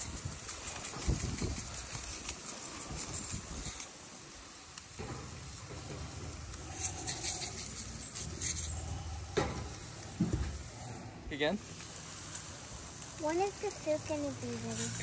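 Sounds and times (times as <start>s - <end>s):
seasoning shaken from a bottle: 0.0s - 4.7s, 6.3s - 9.1s, 11.6s - 15.0s.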